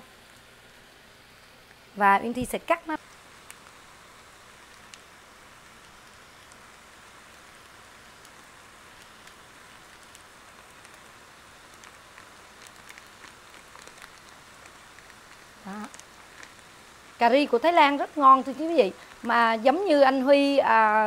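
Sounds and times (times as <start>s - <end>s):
faint pan sizzle: 0.0s - 21.0s
small clicks and ticks: 3.0s - 19.5s.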